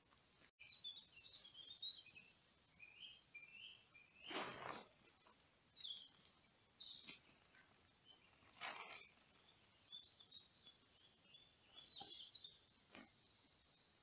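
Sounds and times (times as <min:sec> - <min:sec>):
faint bird chirps: 0:00.6 - 0:14.0
nylon poncho rustling: 0:04.2 - 0:05.3, 0:07.1 - 0:09.4.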